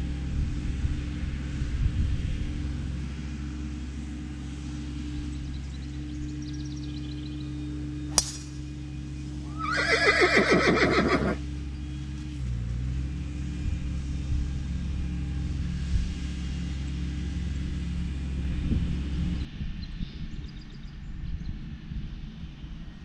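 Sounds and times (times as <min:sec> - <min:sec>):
low hum: 0:05.1 - 0:09.9
golf driver striking ball: 0:08.1 - 0:08.7
whinny-like quavering call: 0:09.5 - 0:11.4.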